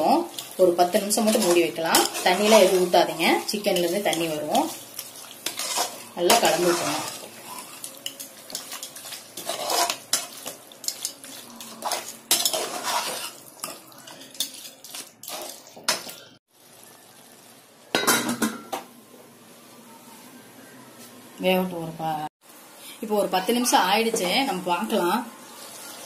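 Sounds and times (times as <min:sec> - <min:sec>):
spatula scraping metal pot: 0:00.4 - 0:16.0.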